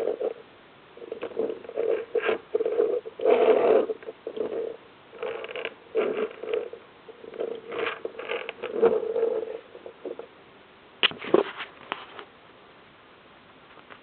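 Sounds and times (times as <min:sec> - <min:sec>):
toy train rolling and scraping: 0:00.0 - 0:00.4, 0:01.0 - 0:10.3.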